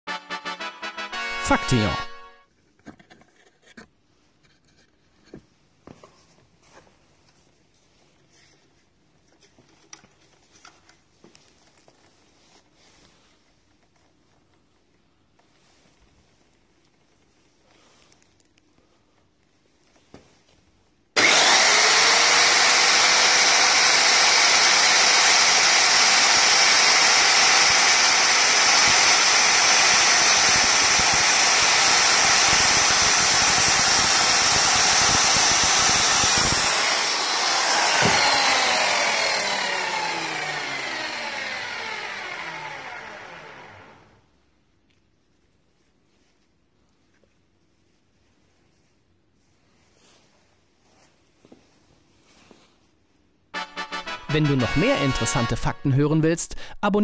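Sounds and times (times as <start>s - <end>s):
circular saw motor whining: 21.2s - 44.1s.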